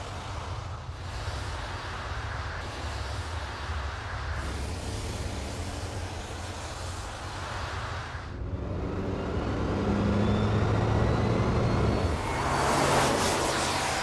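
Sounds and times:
car passing with low hum: 8.4s - 14.0s.

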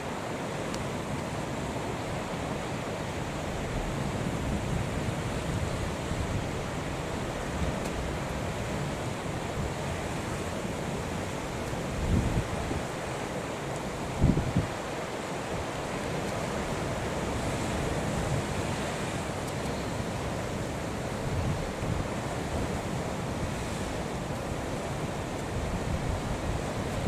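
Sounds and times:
sea waves breaking: 0.0s - 27.0s
wind on microphone: 11.9s - 12.9s, 14.1s - 14.8s.

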